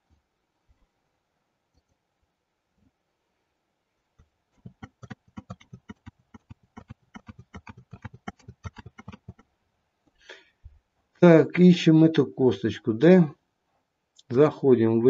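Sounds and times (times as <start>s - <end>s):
mouse and keyboard clicks: 4.6s - 9.4s.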